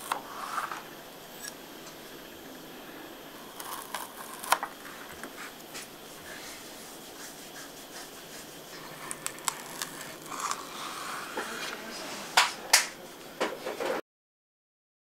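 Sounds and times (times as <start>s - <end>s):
baking paper crinkling: 3.4s - 13.0s.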